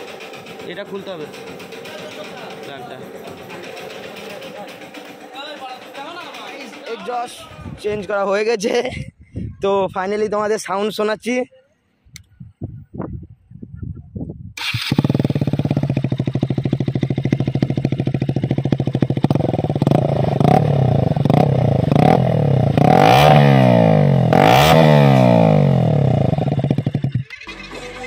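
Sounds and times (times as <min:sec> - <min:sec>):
motorcycle engine starting: 0:00.0 - 0:07.5, 0:14.6 - 0:28.0
motorcycle engine idling: 0:00.0 - 0:07.8, 0:14.6 - 0:27.7
engine throttle blips and revs: 0:14.6 - 0:27.5.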